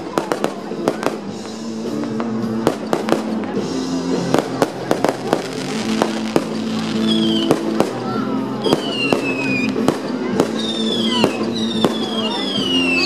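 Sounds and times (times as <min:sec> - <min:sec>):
fireworks bangs and crackles: 0:00.0 - 0:13.0
music: 0:00.0 - 0:13.0
falling firework whistle: 0:07.0 - 0:07.7, 0:08.6 - 0:13.0.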